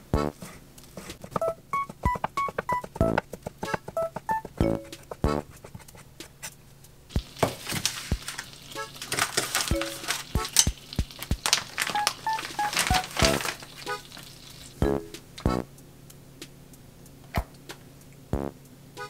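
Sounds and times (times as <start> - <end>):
plucked background music: 0.0 - 0.5, 1.4 - 6.3, 7.1 - 15.7, 18.3 - 19.0
oil sizzling in a frying pan: 7.1 - 14.8.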